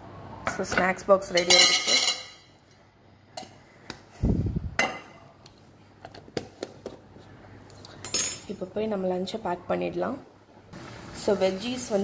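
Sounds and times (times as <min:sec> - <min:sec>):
metal utensils clinking: 0:00.8 - 0:02.5.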